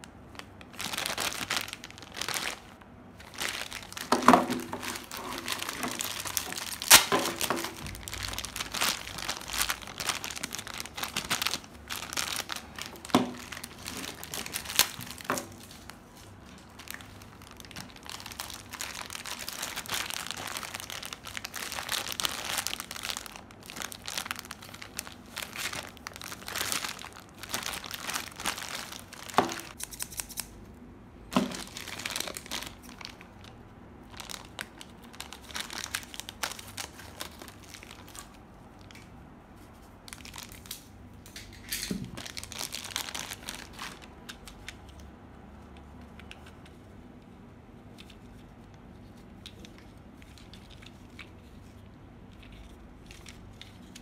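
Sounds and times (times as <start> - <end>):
plastic bags crinkling: 0.0 - 29.8, 31.3 - 39.2, 40.0 - 45.0.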